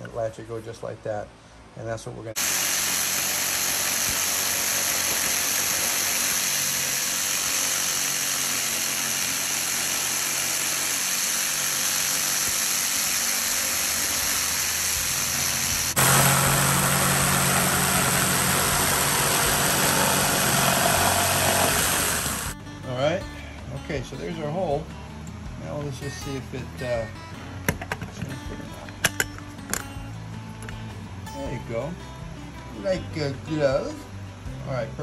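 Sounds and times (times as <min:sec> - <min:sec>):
jigsaw cutting wood: 0:02.4 - 0:22.6.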